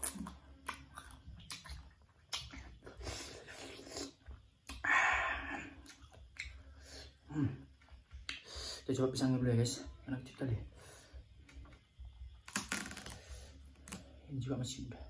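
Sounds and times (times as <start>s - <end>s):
crisp bites and wet chewing: 0.0s - 3.0s, 12.4s - 14.0s
mouth clicks: 5.8s - 6.6s.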